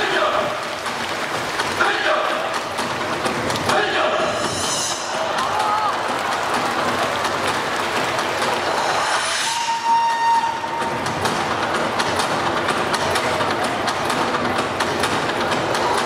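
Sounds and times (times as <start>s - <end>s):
dense rushing noise with clicks: 0.0s - 9.3s
held horn-like note: 9.0s - 10.9s.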